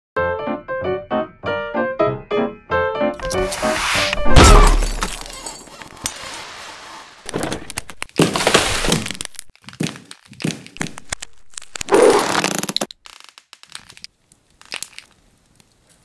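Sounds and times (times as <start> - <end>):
sharp cracking and breaking: 7.2 - 15.9.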